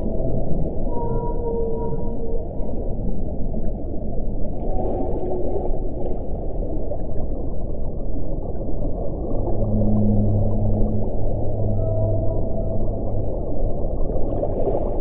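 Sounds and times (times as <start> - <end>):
whale moaning calls: 0.0 - 3.6, 4.6 - 6.2, 9.3 - 14.4
underwater sea noise: 0.0 - 15.0.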